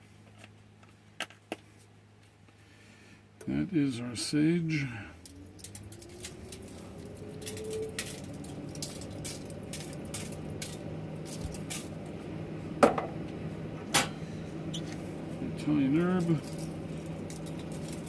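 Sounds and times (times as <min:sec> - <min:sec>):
low steady hum: 0:00.0 - 0:18.0
spice jars clicking and rattling: 0:05.3 - 0:11.9, 0:16.3 - 0:18.0.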